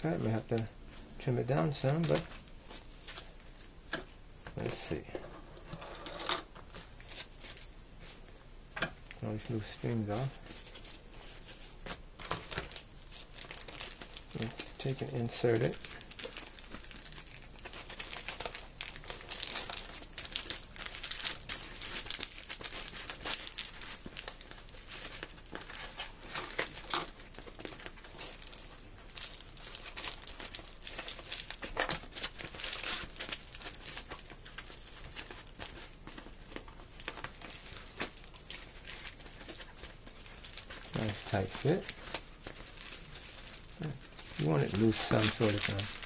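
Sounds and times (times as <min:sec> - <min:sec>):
cardboard and fabric crinkling: 0:00.0 - 0:03.7, 0:06.6 - 0:08.4, 0:09.0 - 0:46.0.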